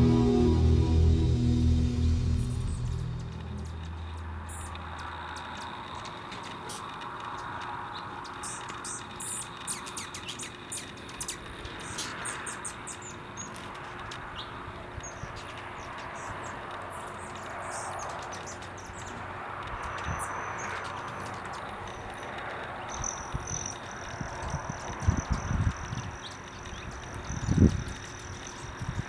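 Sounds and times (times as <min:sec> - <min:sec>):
thin high note: 0:00.0 - 0:04.6
background rush: 0:00.0 - 0:05.1
hummingbird chip calls: 0:08.3 - 0:13.5.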